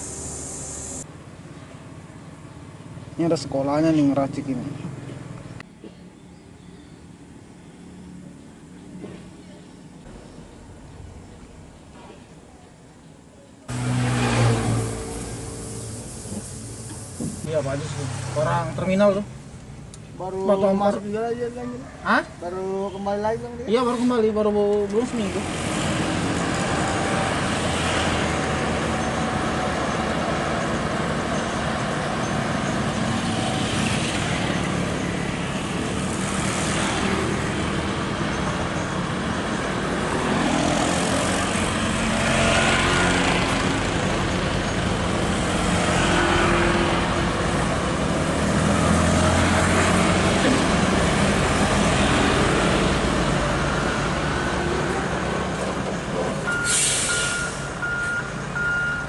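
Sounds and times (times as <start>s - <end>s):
passing road traffic: 0.0s - 59.0s
diesel truck engine running: 13.7s - 18.4s
motorbikes passing: 13.7s - 19.3s, 25.0s - 56.4s.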